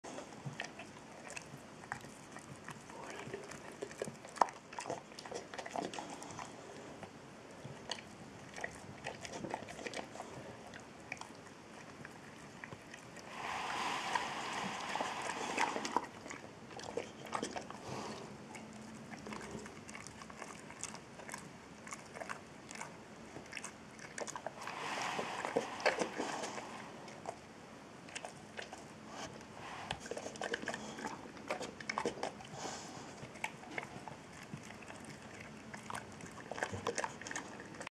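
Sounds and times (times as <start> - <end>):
dog chewing: 0.1 - 27.5, 28.1 - 37.9.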